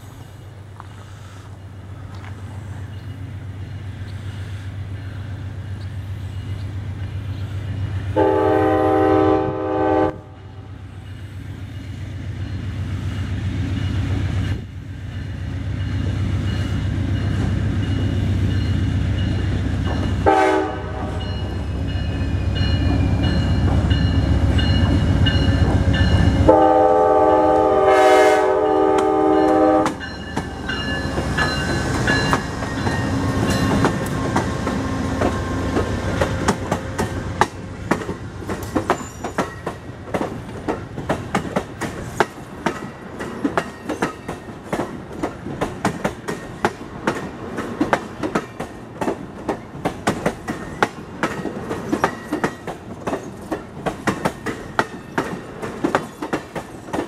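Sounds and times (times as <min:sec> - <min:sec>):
engine and rail rumble: 0:00.0 - 0:57.0
train air horn blasts: 0:08.2 - 0:10.7, 0:20.2 - 0:21.5, 0:26.4 - 0:30.1
wheels clicking over rail joints: 0:29.0 - 0:57.0.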